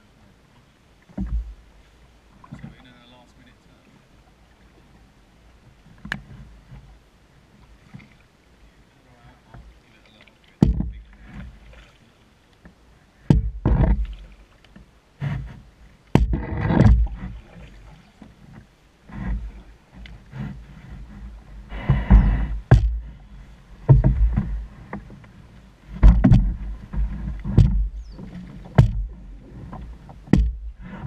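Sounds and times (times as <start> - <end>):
paddle strokes sloshing water: 0.0 - 31.0
paddle knocking canoe hull: 1.0 - 3.1, 9.4 - 31.0.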